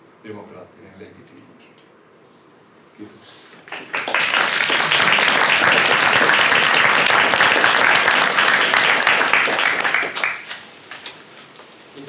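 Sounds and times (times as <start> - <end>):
audience applauding: 3.6 - 11.2.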